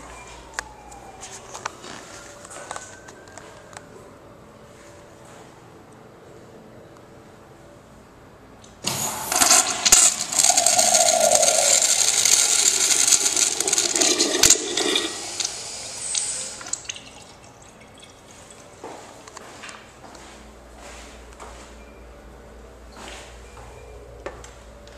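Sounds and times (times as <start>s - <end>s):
urinal flushing: 8.8s - 19.0s
water trickling: 11.0s - 18.9s.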